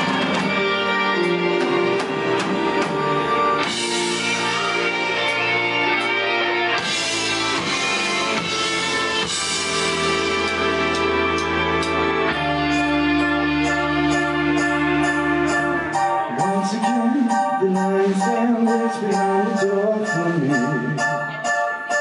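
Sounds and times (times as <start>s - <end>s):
drums and cymbals: 0.0s - 6.2s, 6.8s - 12.0s
electric guitars sustained chords: 0.0s - 18.4s.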